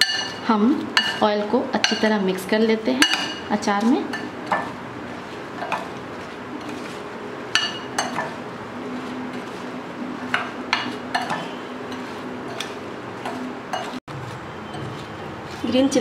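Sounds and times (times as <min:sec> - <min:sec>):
spoon clinking against glass bowl: 0:00.0 - 0:00.4, 0:07.6 - 0:08.3
metal spoon stirring in glass bowl: 0:00.0 - 0:02.2, 0:03.0 - 0:16.0.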